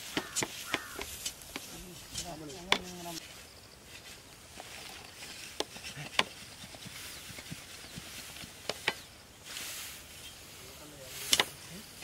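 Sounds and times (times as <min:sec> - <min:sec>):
dry grass rustling: 0:00.0 - 0:12.0
dry stems cracking: 0:00.1 - 0:03.2.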